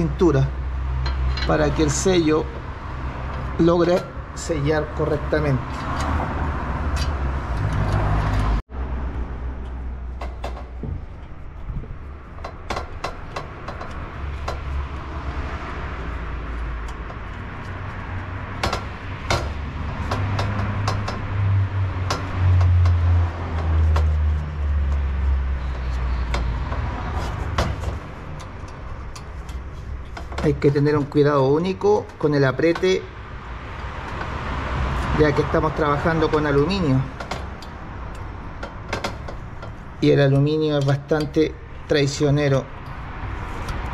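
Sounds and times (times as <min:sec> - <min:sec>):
hand tools clicking and knocking: 0:00.9 - 0:04.1, 0:12.3 - 0:15.3, 0:16.1 - 0:41.5.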